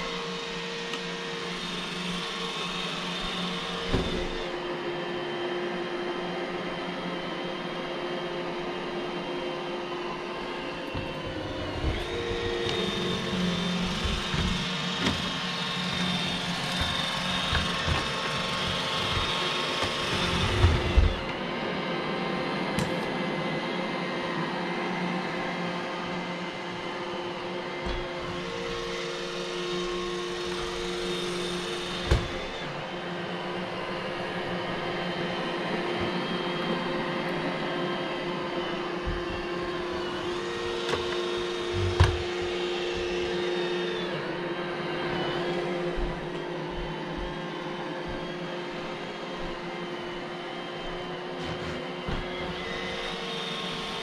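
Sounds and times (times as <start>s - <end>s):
robot vacuum whirring: 0.0s - 54.0s.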